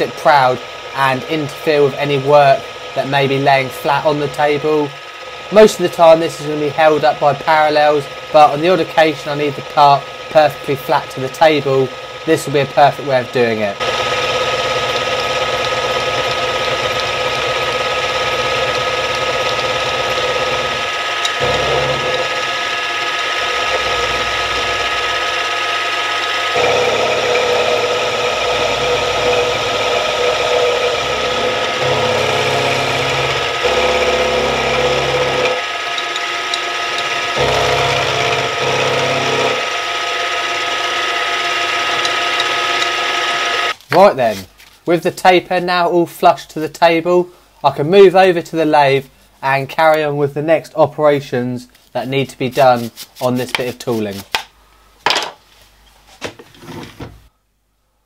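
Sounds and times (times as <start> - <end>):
end mill cutting metal: 0.0 - 43.8
milling spindle whine: 0.0 - 43.8.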